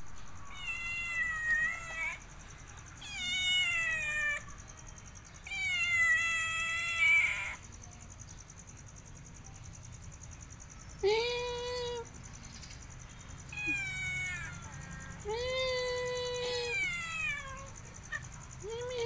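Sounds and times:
cat meowing: 0:00.4 - 0:02.2, 0:03.0 - 0:04.5, 0:05.4 - 0:07.6, 0:13.5 - 0:18.2.

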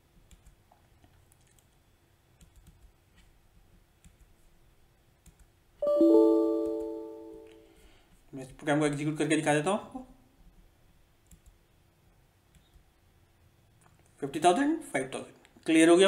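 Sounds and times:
faint mouse clicks: 0:00.2 - 0:03.3, 0:04.0 - 0:04.5, 0:05.2 - 0:05.6, 0:11.2 - 0:11.6, 0:12.5 - 0:12.9
computer error chime: 0:05.8 - 0:07.6.

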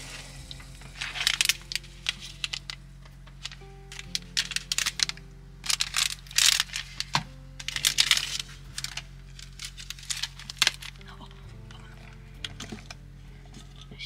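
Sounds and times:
paper bag tearing and crinkling: 0:00.0 - 0:11.1
background music with sustained notes: 0:00.0 - 0:14.0.

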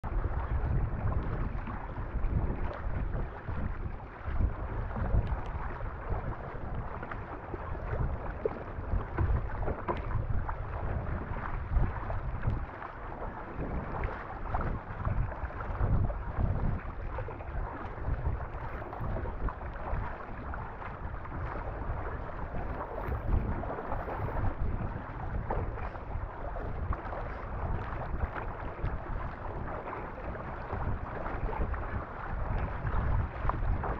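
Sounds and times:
water rushing along a hull: 0:00.0 - 0:33.9
wind buffeting on microphone: 0:00.0 - 0:33.9.

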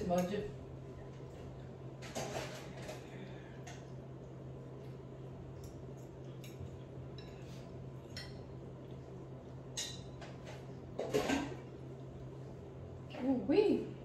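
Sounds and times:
steady low hum: 0:00.0 - 0:14.0
dishes and cutlery clinking: 0:02.0 - 0:03.9, 0:05.6 - 0:08.6, 0:09.7 - 0:11.7.

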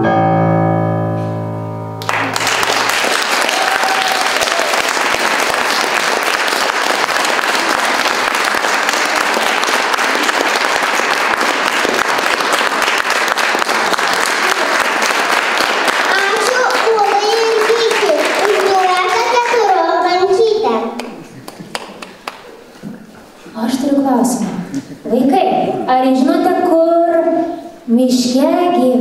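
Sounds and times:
electric keyboard chord: 0:00.0 - 0:02.3
audience applause: 0:02.0 - 0:22.6.

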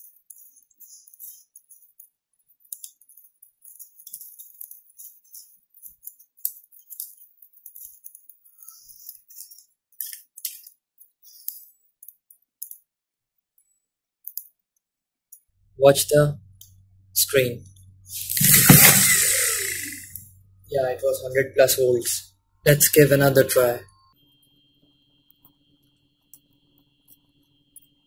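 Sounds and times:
motor rattling and scratching: 0:18.1 - 0:21.2.

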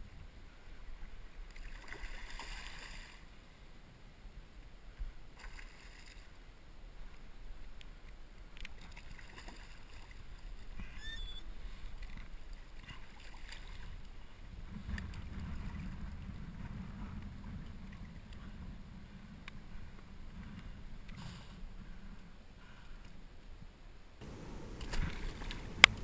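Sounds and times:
surf water sloshing and lapping: 0:00.0 - 0:04.1, 0:04.7 - 0:23.4, 0:24.2 - 0:26.0
small splashes: 0:01.5 - 0:03.2, 0:05.4 - 0:06.3, 0:08.6 - 0:10.6, 0:12.0 - 0:14.1, 0:24.2 - 0:26.0
short high chirps: 0:11.0 - 0:11.5
low rumble: 0:24.2 - 0:26.0.

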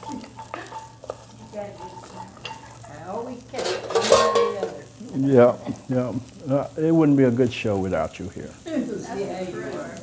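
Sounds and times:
metal pan clatter and scrape: 0:00.0 - 0:02.8, 0:03.5 - 0:04.8
wooden spoon stirring: 0:00.0 - 0:04.3
vegetables sauteing in butter: 0:00.0 - 0:10.0.

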